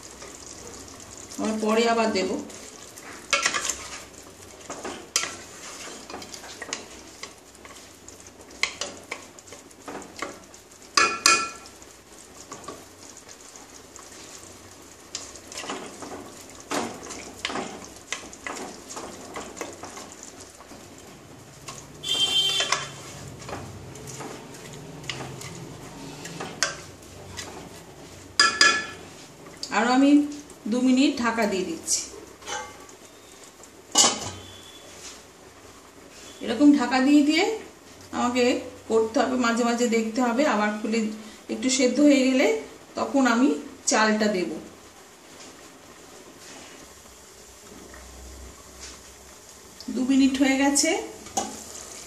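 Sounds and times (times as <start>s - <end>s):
light sizzle of cooking: 0.0s - 52.0s
wooden spatula scraping a pot: 2.5s - 10.4s, 15.1s - 29.4s.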